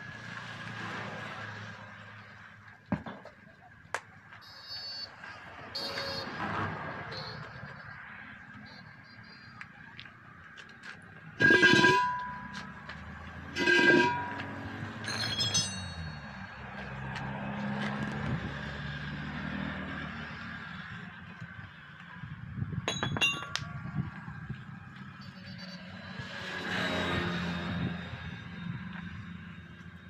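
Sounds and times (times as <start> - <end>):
vehicle passing: 9.9 - 22.0, 26.0 - 29.8
metal wheel rims clanking: 11.4 - 12.9, 13.5 - 16.5.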